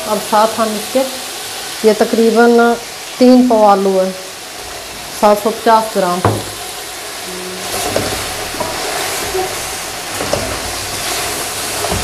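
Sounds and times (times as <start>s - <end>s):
food sizzling in hot oil: 0.0s - 12.0s
wooden spoon stirring: 7.6s - 12.0s.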